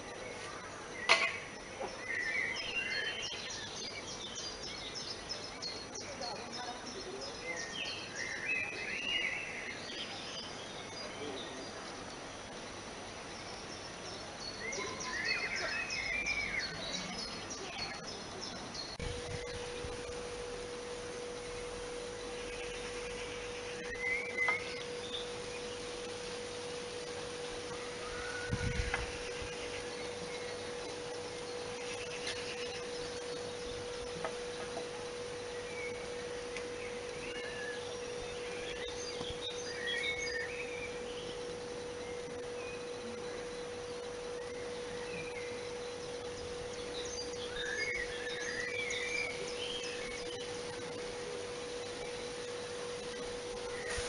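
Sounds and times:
bird chirping: 0.0 - 12.5, 13.2 - 54.0
background hiss: 0.0 - 54.0
steady low hum: 0.0 - 54.0
gliding bird whistles: 53.6 - 54.0.

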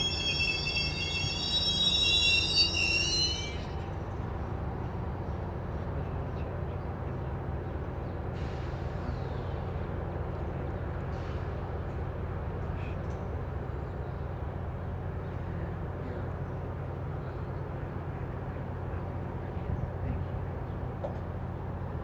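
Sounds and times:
train wheel squeal: 0.0 - 4.2
train wheels rumbling on rails: 0.0 - 22.0.

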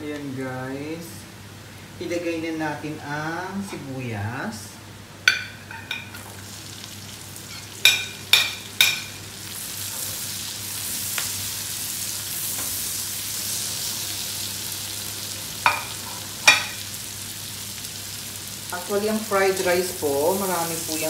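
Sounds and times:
onions sizzling in a wok: 5.2 - 21.0.

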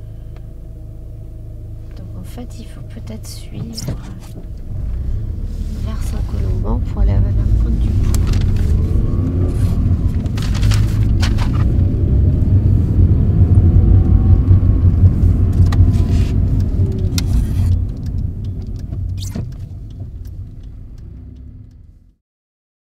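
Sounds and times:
car engine and road noise: 0.0 - 22.2
sharp knocks and clicks: 15.5 - 21.5.

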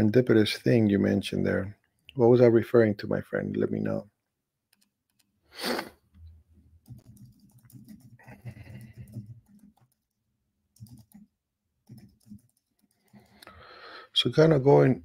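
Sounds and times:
loud breathy burst: 5.5 - 6.0, 13.2 - 14.1
computer keyboard typing: 6.8 - 13.4.

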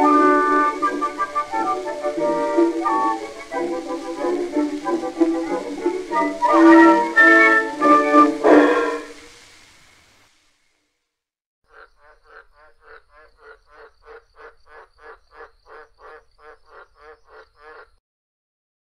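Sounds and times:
frog croaking: 11.7 - 18.0.

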